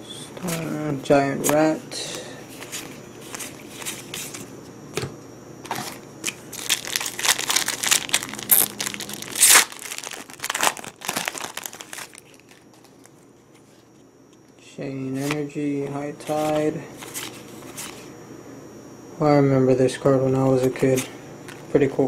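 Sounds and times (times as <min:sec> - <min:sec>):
foil pack crinkling and tearing: 0:05.7 - 0:13.7, 0:16.2 - 0:18.1.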